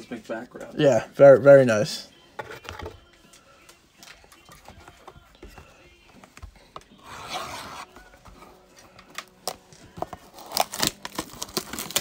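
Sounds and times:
shrink-wrapped box rubbing scrape: 7.0 - 7.9.

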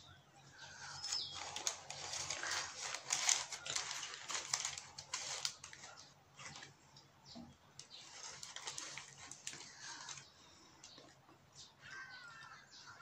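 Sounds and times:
paper wrapper crinkling: 0.8 - 6.8, 7.8 - 10.3.

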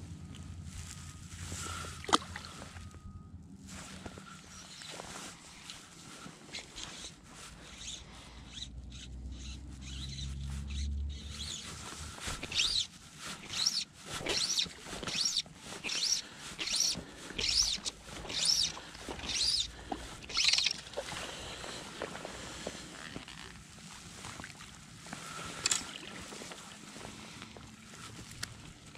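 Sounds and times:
fly line raspy strokes: 6.5 - 21.4.

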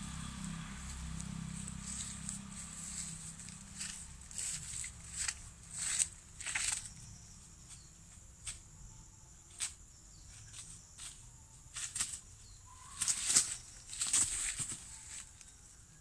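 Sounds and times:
footfalls in grass and dry leaves: 0.0 - 7.0, 10.4 - 12.2, 12.8 - 15.3
high insect drone: 0.0 - 16.0.

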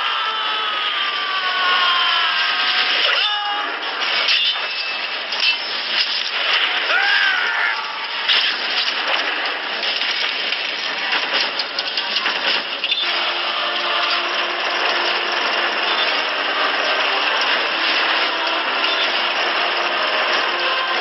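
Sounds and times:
engine-like roar: 13.0 - 21.0.

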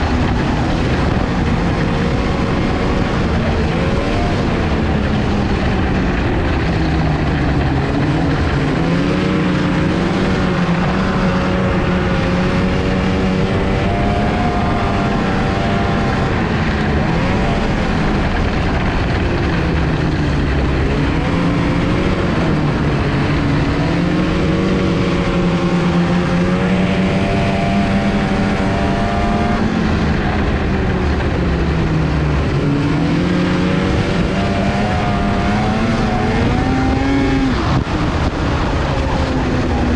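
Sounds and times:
snowmobile engine revving: 0.0 - 39.9
steady rushing noise: 0.0 - 39.9.

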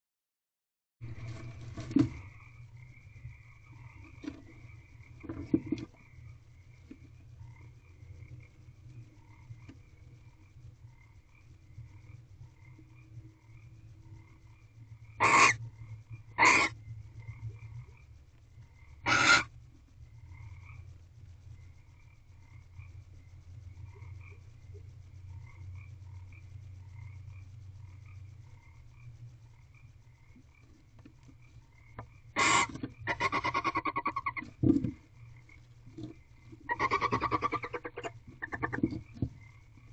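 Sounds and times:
frogs croaking: 1.1 - 39.9
owl calls: 15.2 - 15.6, 16.4 - 16.8, 19.0 - 19.6, 32.3 - 34.5, 36.6 - 39.0.

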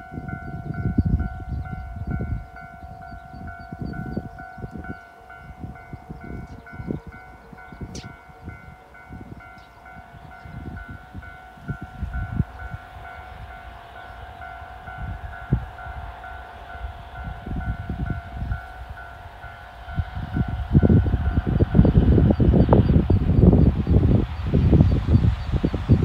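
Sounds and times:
train low rumble: 0.0 - 26.0
wind buffeting microphone: 0.0 - 26.0.

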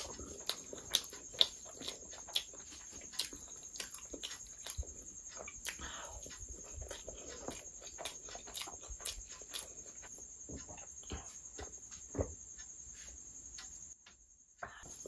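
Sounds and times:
wet chewing and lip smacks: 0.0 - 10.2.

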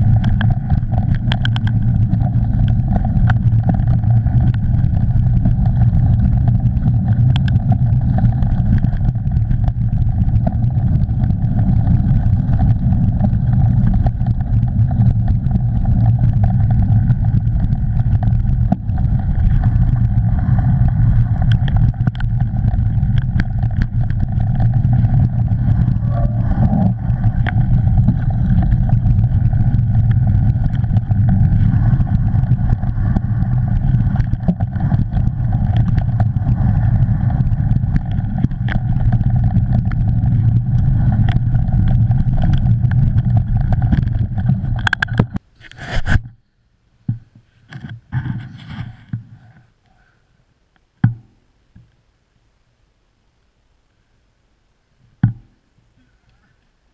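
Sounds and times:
wind buffeting: 0.0 - 45.4
bike clicks and rattles: 0.0 - 45.7
tyre noise on trail: 0.0 - 46.3.

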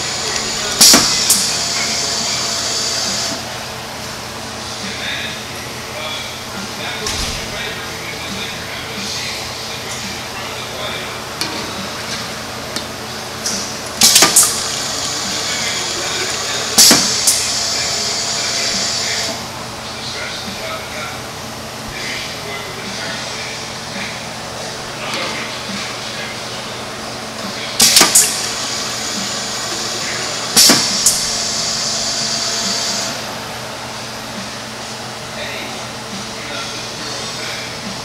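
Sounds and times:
pneumatic machine air hissing: 0.0 - 3.5, 13.5 - 19.4, 27.8 - 33.3
low machine hum: 0.0 - 38.0.

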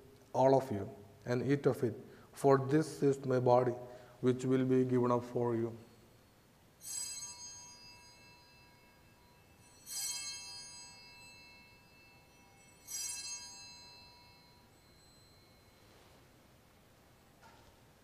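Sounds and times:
altar bells ringing: 5.5 - 17.2.

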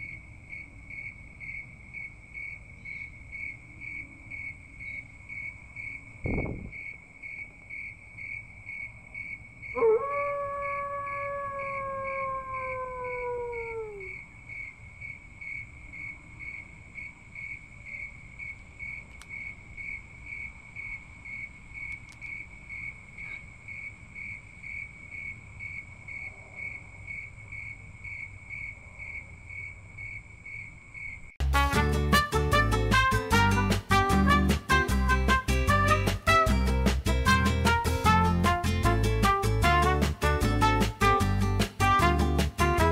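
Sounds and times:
crickets chirping: 0.0 - 31.4
howl gliding down in pitch: 9.8 - 14.2.

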